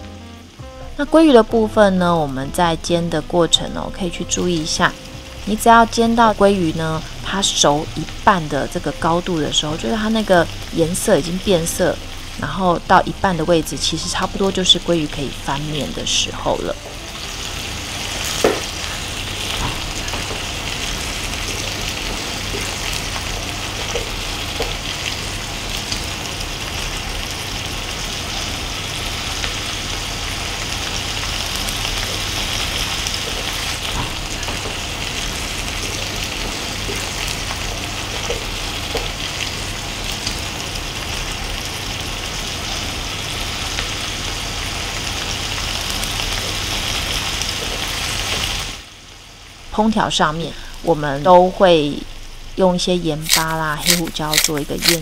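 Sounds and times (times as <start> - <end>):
fish sizzling in a pan: 0.0 - 50.7, 53.1 - 55.0
tongs clicking: 53.2 - 55.0.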